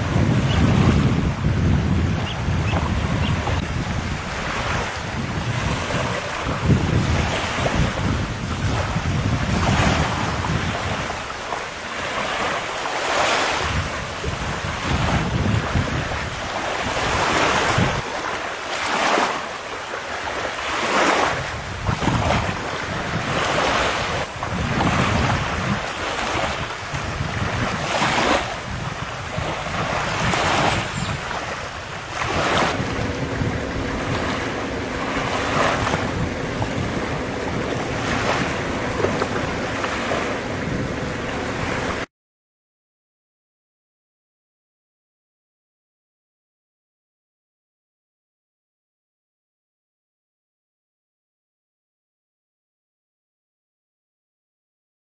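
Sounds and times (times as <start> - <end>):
small waves breaking on beach: 0.0 - 42.1
wind buffeting microphone: 0.0 - 42.1
steady low hum: 32.0 - 42.1.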